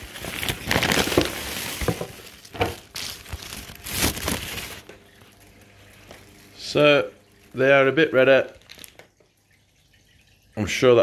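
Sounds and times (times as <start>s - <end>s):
paper and plastic bags crinkling: 0.0s - 6.7s, 8.2s - 9.1s.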